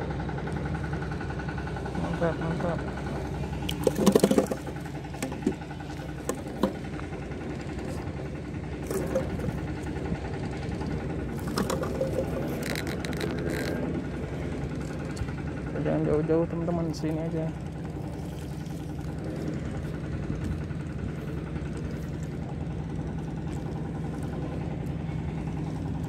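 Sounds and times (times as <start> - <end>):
engine running: 0.0 - 26.0
scratchy rattle: 3.7 - 7.0, 8.8 - 9.9, 11.3 - 14.1
sharp knocks and clicks: 3.7 - 7.0, 11.4 - 13.8.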